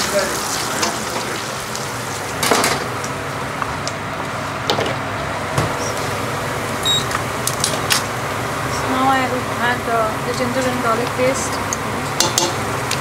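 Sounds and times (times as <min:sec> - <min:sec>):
onions sizzling in oil: 0:00.0 - 0:03.7
steady mechanical hum: 0:00.0 - 0:13.0
short beep: 0:06.8 - 0:07.1.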